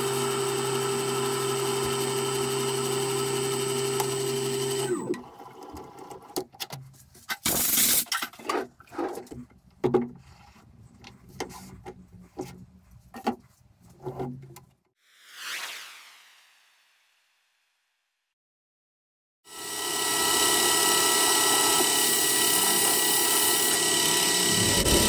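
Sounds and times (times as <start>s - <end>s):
whoosh: 15.1s - 18.0s, 24.4s - 25.0s
metal lathe winding down: 19.6s - 25.0s
loud rushing burst: 24.4s - 25.0s.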